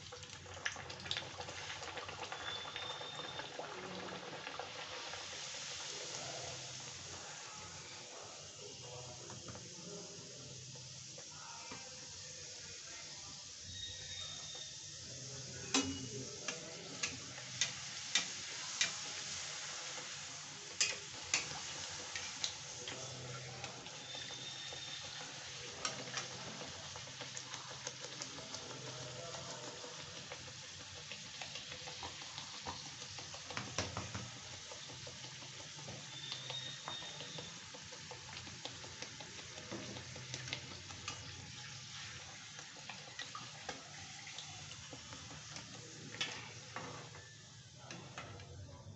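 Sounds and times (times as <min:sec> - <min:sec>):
oil sizzling while deep-frying: 0:00.0 - 0:48.9
metal spatula clicking on pan: 0:20.8 - 0:21.6.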